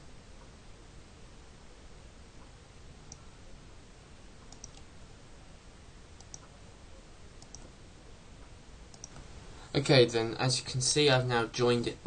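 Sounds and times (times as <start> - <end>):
low steady hiss: 0.0 - 12.0
faint computer mouse clicks: 4.5 - 4.9, 6.2 - 6.6, 7.4 - 7.7, 8.9 - 9.3.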